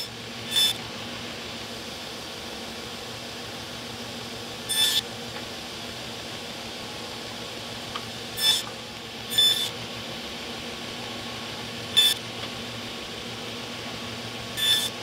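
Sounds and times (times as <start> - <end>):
saw blade cutting whine: 0.0 - 0.9, 4.6 - 5.1, 8.2 - 9.8, 10.8 - 13.2, 14.2 - 15.0
table saw humming: 0.0 - 0.9, 4.6 - 5.1, 8.2 - 10.2, 10.8 - 15.0.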